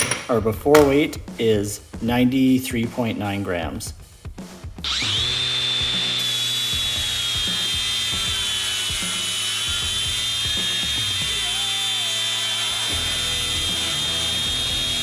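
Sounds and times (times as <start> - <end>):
angle grinder grinding steel: 4.8 - 15.0.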